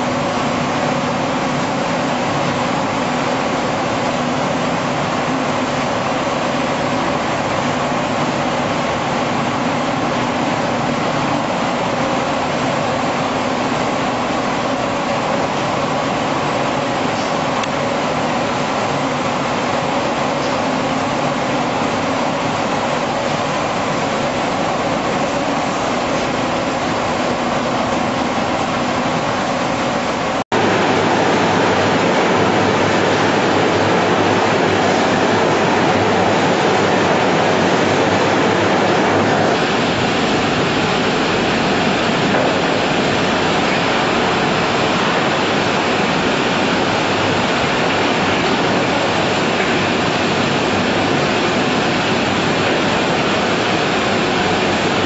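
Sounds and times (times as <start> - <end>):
slaughtering line machinery noise: 0.0 - 55.0.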